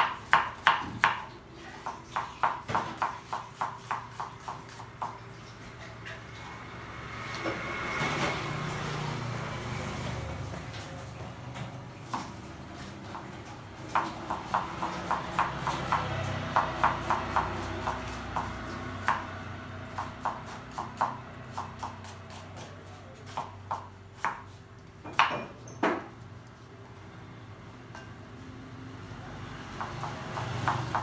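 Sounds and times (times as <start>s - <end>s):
knife chopping on wooden board: 0.0s - 5.2s, 13.9s - 19.3s, 19.9s - 26.1s.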